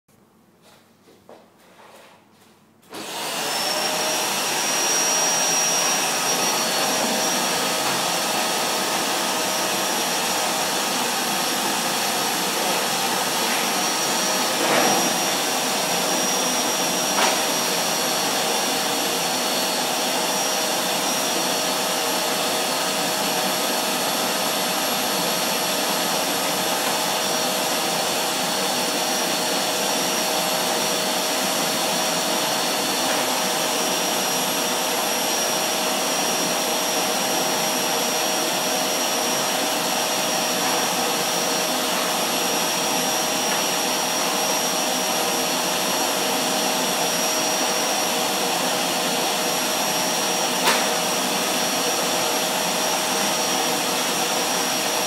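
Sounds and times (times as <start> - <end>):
vacuum cleaner whining: 2.8 - 55.0.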